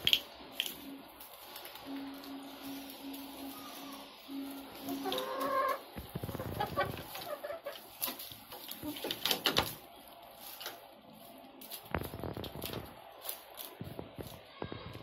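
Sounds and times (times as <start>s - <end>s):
beaks pecking at feed bowl: 0.0s - 9.8s
hens clucking: 3.3s - 9.8s.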